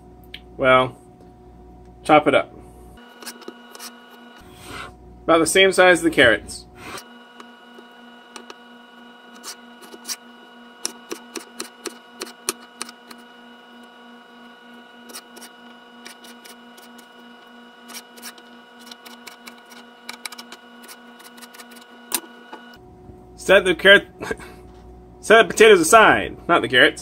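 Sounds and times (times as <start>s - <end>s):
faint steady hum: 0.0s - 27.0s.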